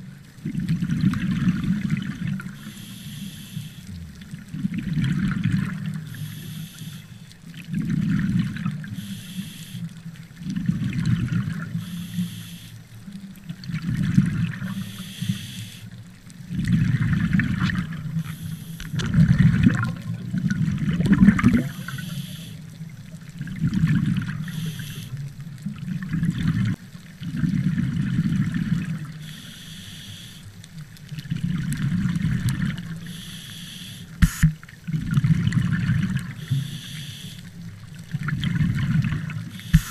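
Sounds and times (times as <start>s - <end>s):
exhaled bubbles gurgling underwater: 0.0s - 39.9s
regulator inhalation hiss: 2.6s - 3.9s, 6.1s - 7.2s, 8.9s - 9.9s, 11.8s - 12.8s, 14.7s - 15.9s, 18.2s - 19.0s, 21.6s - 22.6s, 24.4s - 25.2s, 29.2s - 30.5s, 33.0s - 34.6s, 36.4s - 37.5s, 39.5s - 39.9s.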